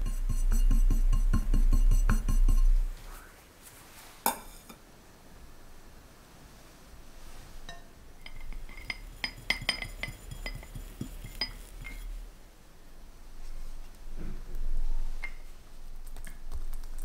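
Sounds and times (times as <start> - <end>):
metal spatula clinking on plate: 7.7 - 12.1.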